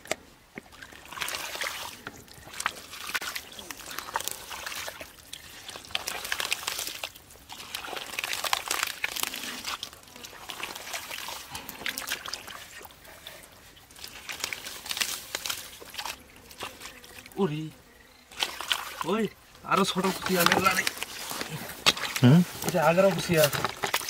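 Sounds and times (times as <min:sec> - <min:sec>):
wet mud squelching by hand: 0:00.0 - 0:17.6, 0:18.3 - 0:24.0.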